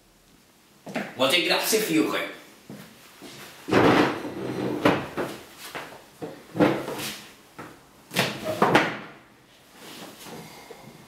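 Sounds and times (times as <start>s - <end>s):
knocks and scrapes of furniture: 3.7s - 5.5s, 6.2s - 7.2s.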